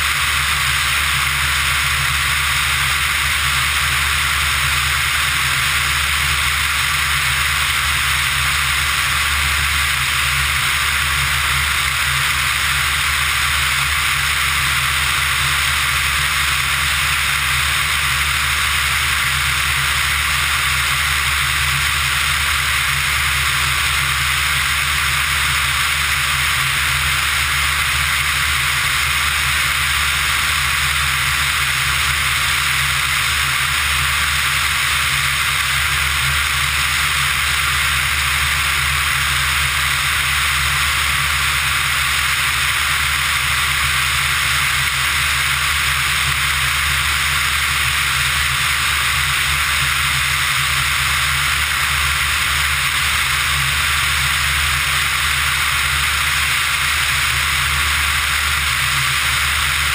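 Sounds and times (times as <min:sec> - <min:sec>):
aircraft engine and propeller drone: 0:00.0 - 0:59.9.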